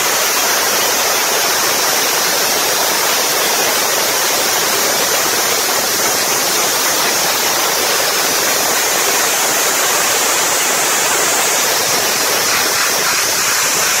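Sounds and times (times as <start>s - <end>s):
abrasive blasting nozzle hissing: 3.0s - 14.0s.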